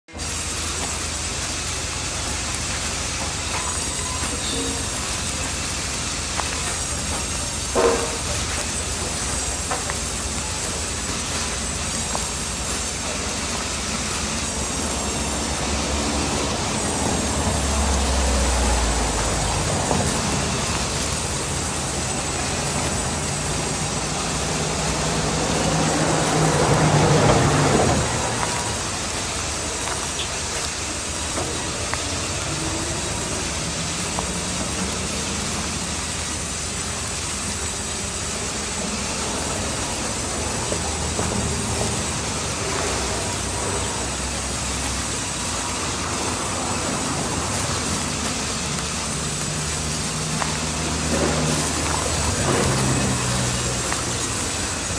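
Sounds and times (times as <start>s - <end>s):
band saw cutting log: 6.7s - 33.9s, 39.2s - 54.9s.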